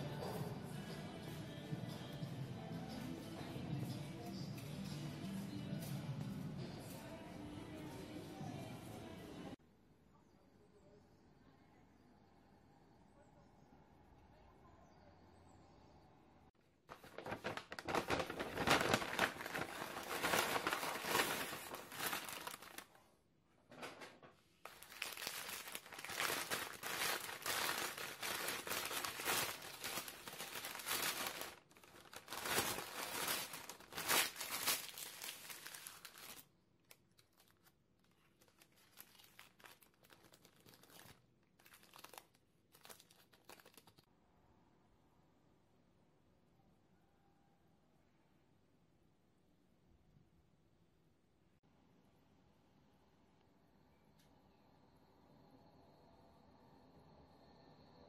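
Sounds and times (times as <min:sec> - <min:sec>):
thin paper peeled off: 0:16.9 - 0:22.8
paper bag crinkling: 0:16.9 - 0:23.0, 0:24.6 - 0:44.1.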